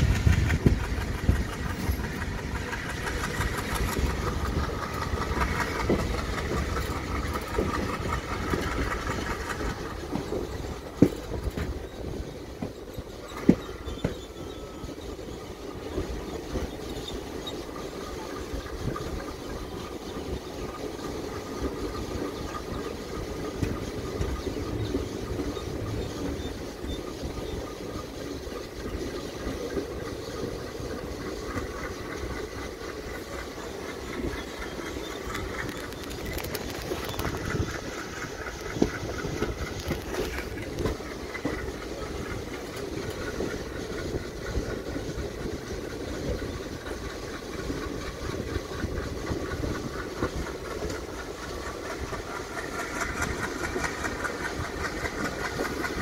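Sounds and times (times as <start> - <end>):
train coaches running on rails: 0.0 - 56.0.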